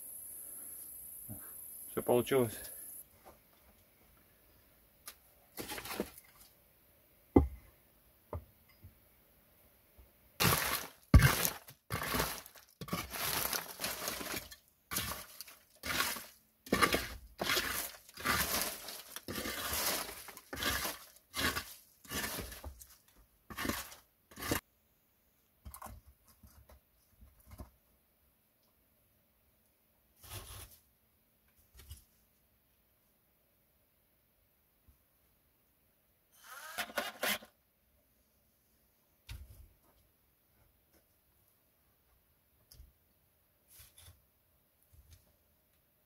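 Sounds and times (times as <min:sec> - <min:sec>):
hand tool scraping wood: 0:10.4 - 0:24.6, 0:36.4 - 0:37.5.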